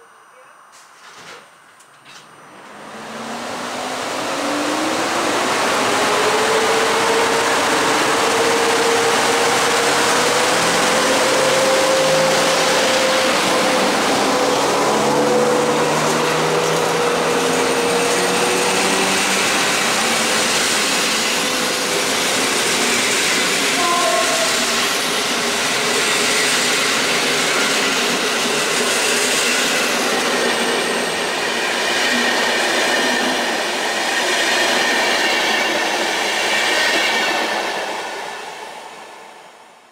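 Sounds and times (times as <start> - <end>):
thin whine: 0.0 - 28.2
train wheels rumbling on rail: 2.7 - 39.4.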